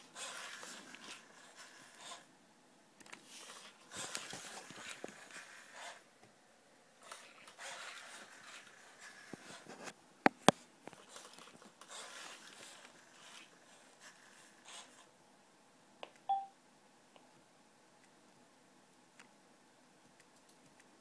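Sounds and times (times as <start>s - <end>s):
short electronic beep: 16.3s - 16.5s.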